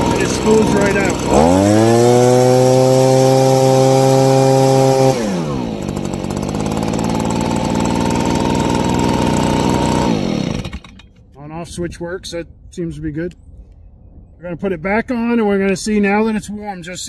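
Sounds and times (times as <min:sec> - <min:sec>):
engine running down to stop: 0:00.0 - 0:11.1
leaf blower engine: 0:00.0 - 0:11.2.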